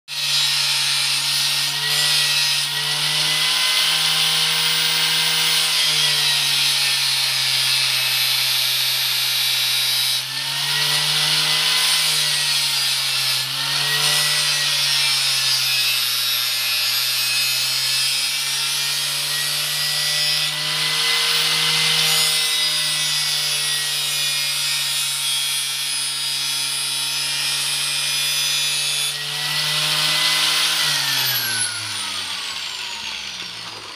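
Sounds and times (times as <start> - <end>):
power tool cutting: 0.1 - 33.9.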